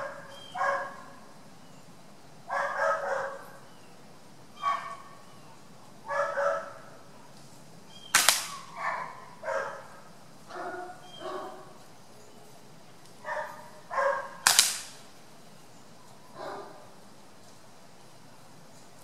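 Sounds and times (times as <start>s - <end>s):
pellet smacking wooden target: 8.1s - 8.6s, 14.4s - 15.0s
air rifle shots: 8.1s - 8.8s, 14.4s - 15.1s.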